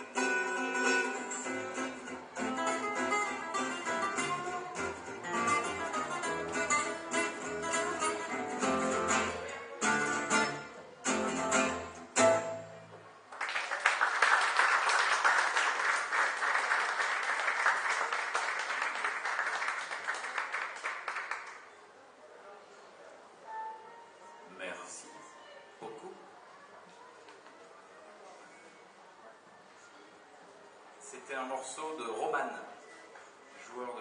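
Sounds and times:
gypsy jazz band playing: 0.0 - 13.0
audience applause: 13.3 - 21.7.

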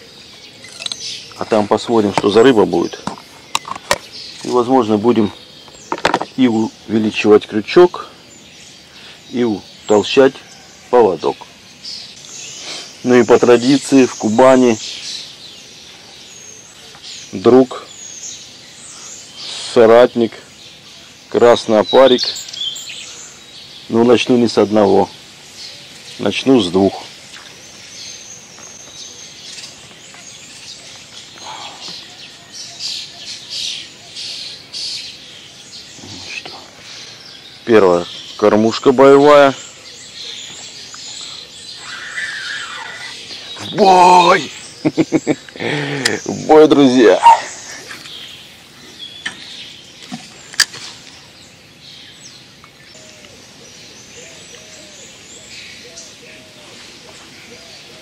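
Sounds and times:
birds chirping and singing: 0.0 - 58.0
faint outdoor background: 0.0 - 58.0
whistled bird calls: 39.2 - 49.8.

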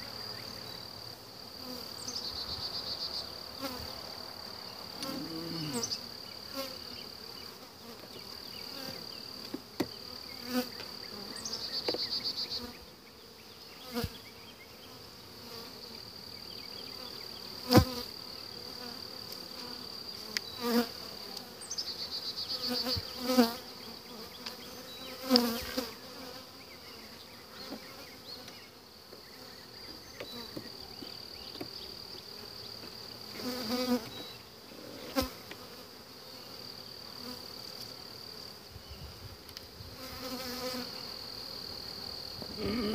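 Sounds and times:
honeybees buzzing: 0.0 - 42.9
bees buzzing past microphone: 1.5 - 16.1, 16.7 - 42.9
hive frames clicking and knocking: 25.2 - 25.6.

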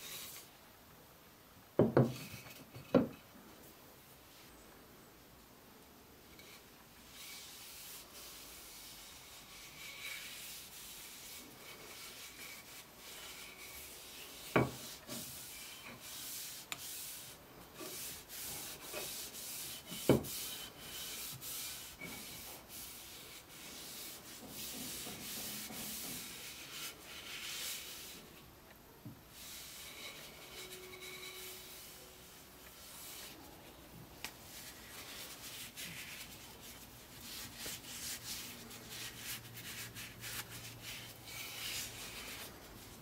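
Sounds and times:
sandpaper rubbing: 7.1 - 28.2, 34.5 - 43.0.

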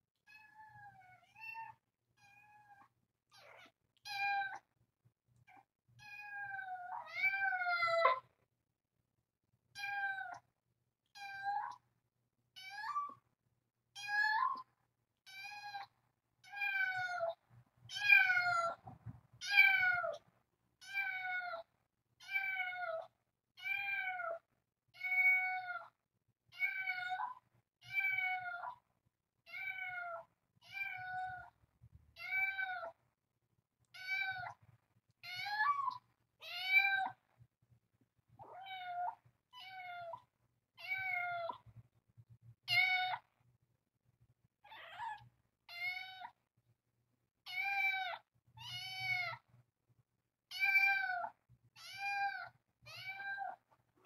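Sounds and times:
cat meowing: 29.5 - 31.5, 34.0 - 34.6, 35.2 - 37.2, 38.4 - 40.2, 44.7 - 46.4, 50.5 - 53.6.

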